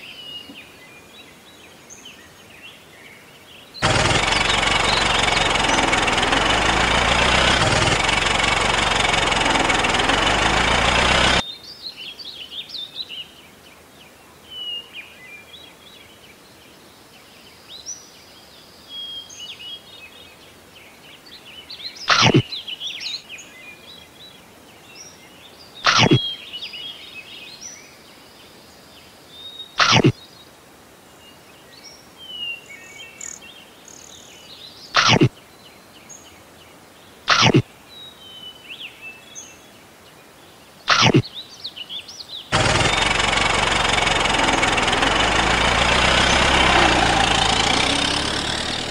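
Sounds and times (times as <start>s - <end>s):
birdsong chirps: 0.0s - 48.9s
tractor engine running: 3.8s - 11.4s, 42.5s - 48.9s
loud sharp snaps: 22.1s - 22.4s, 25.9s - 26.2s, 29.8s - 30.2s, 35.0s - 35.3s, 37.3s - 37.6s, 40.9s - 41.2s.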